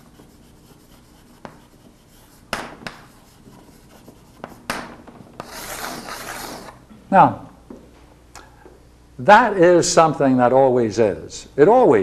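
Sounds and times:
chalk scraping on blackboard: 0:00.0 - 0:04.7, 0:05.4 - 0:06.8
chalk tapping on blackboard: 0:00.0 - 0:06.7.

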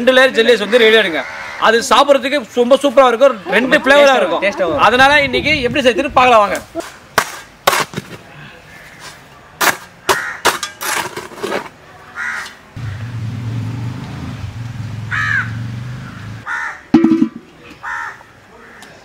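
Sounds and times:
crows cawing: 0:00.4 - 0:02.1, 0:10.0 - 0:10.5, 0:12.2 - 0:13.1, 0:15.1 - 0:16.9, 0:17.8 - 0:19.0
sharp knocks: 0:17.0 - 0:17.5.

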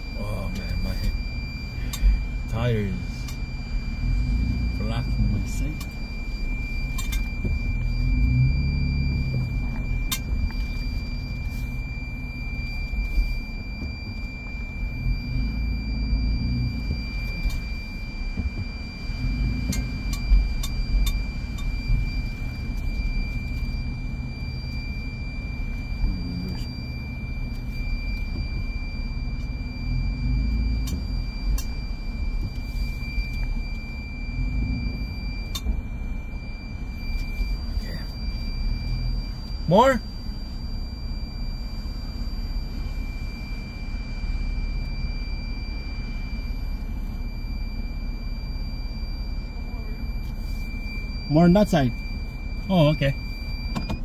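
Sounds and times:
high-pitched whine: 0:00.0 - 0:54.0
vehicle cab rumble: 0:00.0 - 0:54.0.

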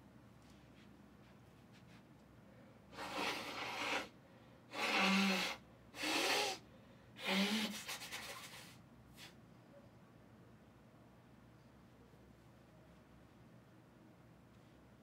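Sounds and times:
person forceful breath bursts: 0:02.9 - 0:06.6.

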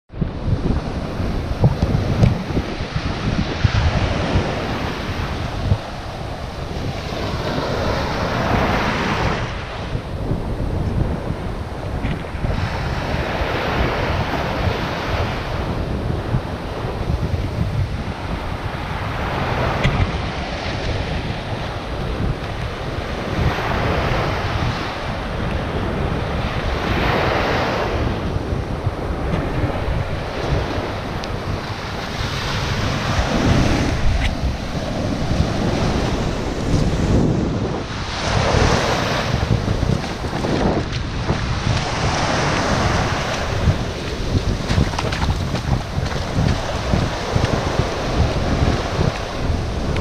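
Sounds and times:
wind buffeting microphone: 0:00.1 - 0:50.0
small waves breaking on shore: 0:00.3 - 0:50.0.

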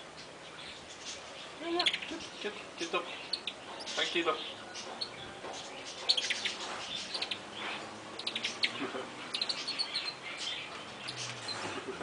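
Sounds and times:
monkey chirping: 0:03.2 - 0:04.2, 0:05.9 - 0:07.5, 0:08.1 - 0:11.7.

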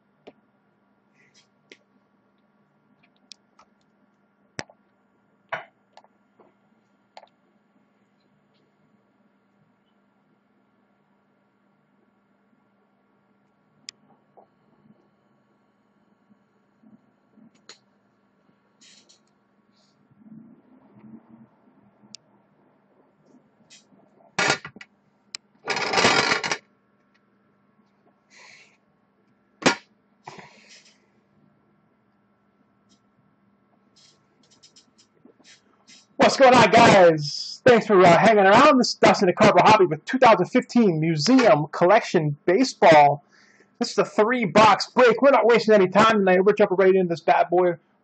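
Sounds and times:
steady low hum: 0:00.0 - 0:47.8
faint clicks and taps: 0:01.4 - 0:07.4.

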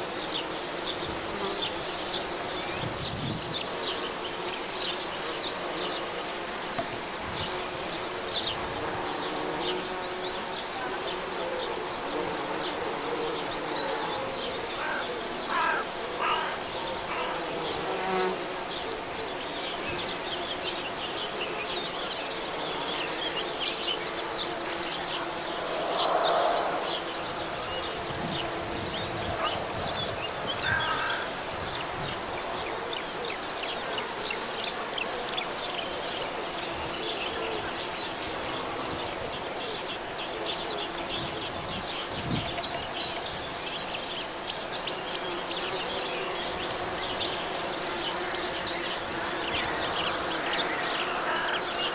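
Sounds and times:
bees buzzing: 0:00.0 - 0:41.0.

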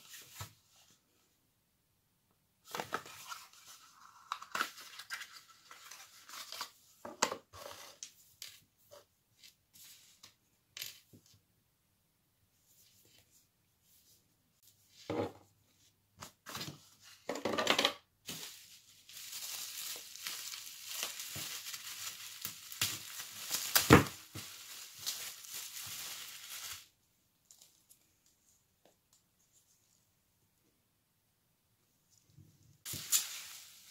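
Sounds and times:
bubble wrap crinkling and snapping: 0:18.3 - 0:28.0, 0:32.9 - 0:33.9.

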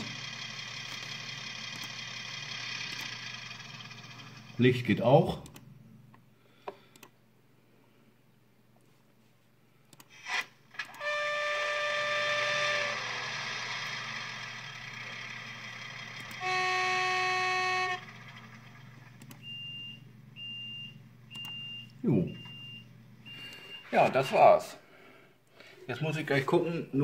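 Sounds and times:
train horn blasts: 0:10.9 - 0:13.2, 0:16.3 - 0:18.2.

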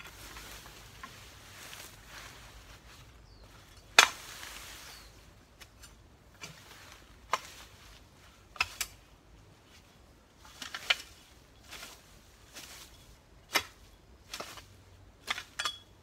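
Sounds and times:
digging tool striking ground: 0:03.8 - 0:04.3, 0:08.4 - 0:09.0, 0:13.4 - 0:16.0.

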